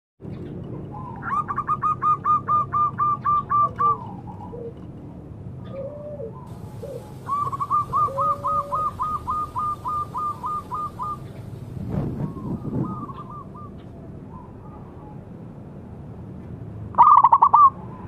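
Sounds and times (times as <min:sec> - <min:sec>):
dove cooing: 0:00.9 - 0:04.9, 0:05.6 - 0:15.2, 0:17.0 - 0:17.8.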